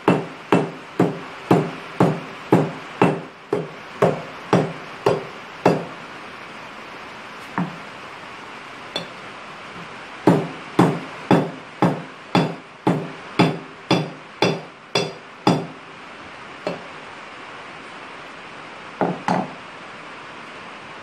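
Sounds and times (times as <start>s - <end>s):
hammer tapping on metal: 0.0s - 5.9s, 9.0s - 9.2s, 10.3s - 15.8s, 16.7s - 16.9s, 19.0s - 19.6s.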